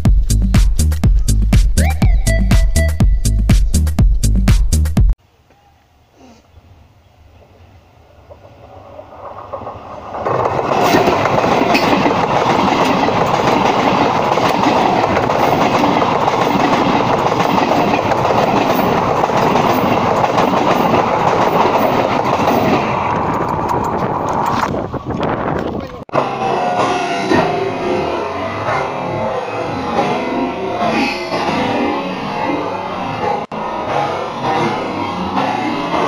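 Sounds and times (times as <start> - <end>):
train wheels clattering on rail: 8.2 - 25.9.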